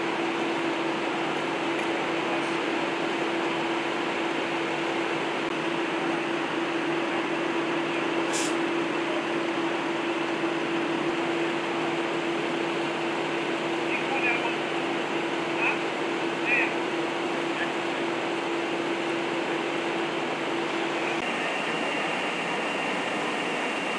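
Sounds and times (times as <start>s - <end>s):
fire engines droning hum: 0.0s - 23.9s
short hiss: 8.3s - 8.6s.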